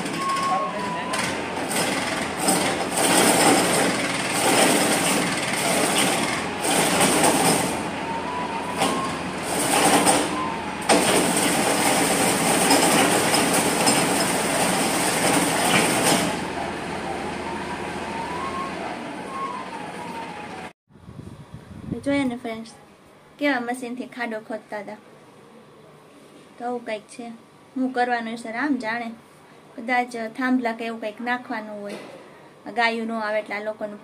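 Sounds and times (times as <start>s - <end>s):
tractor engine surging: 0.0s - 20.7s.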